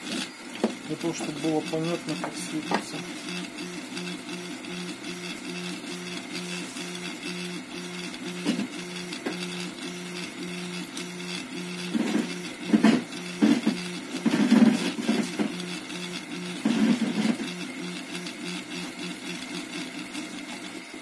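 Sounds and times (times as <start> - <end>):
stepper motors whining: 0.0 - 21.0
printer knocks: 2.1 - 3.0.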